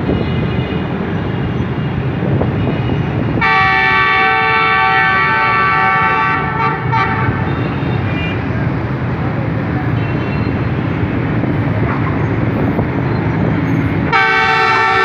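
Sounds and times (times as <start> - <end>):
locomotive horn blast: 3.4 - 8.6, 14.1 - 15.0.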